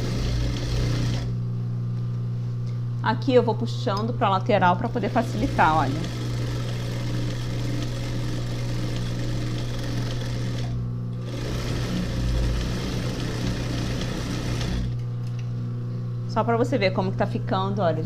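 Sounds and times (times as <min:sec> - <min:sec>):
sewing machine stitching: 0:00.0 - 0:01.3, 0:05.0 - 0:15.0
sewing machine motor humming: 0:00.0 - 0:01.4, 0:04.8 - 0:15.0.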